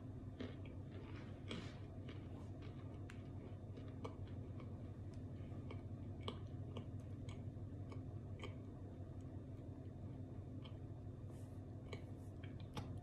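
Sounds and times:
low steady hum: 0.0s - 13.0s
chewing with sharp crunches: 0.1s - 13.0s.

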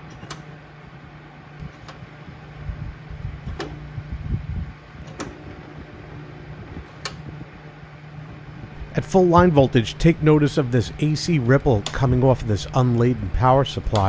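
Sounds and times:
battery charger humming: 0.0s - 14.0s
cooling fan running: 0.0s - 14.0s
rotary switch clicks: 5.0s - 5.4s, 6.8s - 7.3s, 11.6s - 12.8s.

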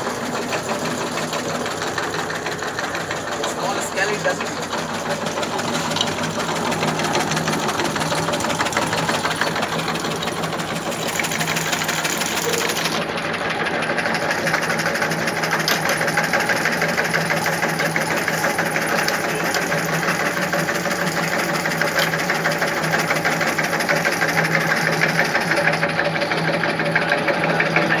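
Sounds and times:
motor hum: 0.0s - 28.0s
cutting blade clatter: 15.5s - 16.2s.

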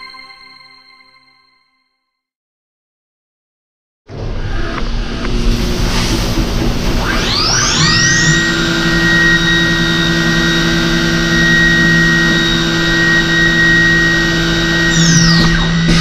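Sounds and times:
machine spindle whining: 4.1s - 16.0s.

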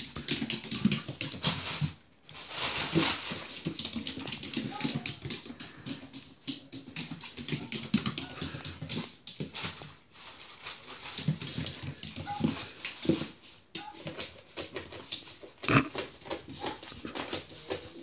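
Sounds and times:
plastic bag rustling: 1.3s - 4.2s.

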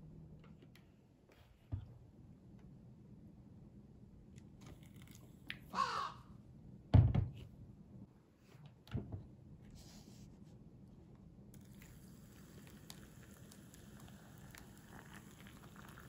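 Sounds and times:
crow cawing: 5.7s - 6.4s.

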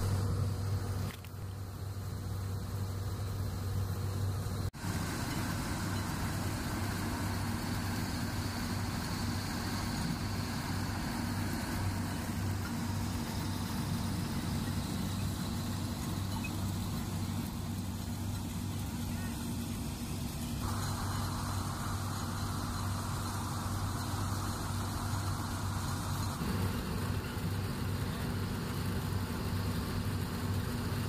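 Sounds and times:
combine harvester running: 0.0s - 31.0s.

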